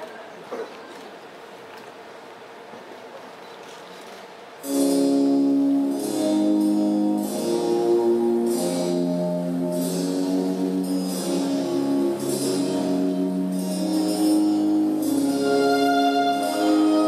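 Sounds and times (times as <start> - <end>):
instrumental music with shimmer: 4.6 - 17.0.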